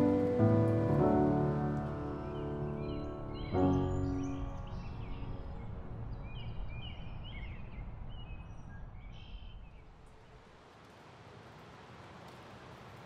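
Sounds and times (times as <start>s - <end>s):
music chord: 0.0s - 5.6s.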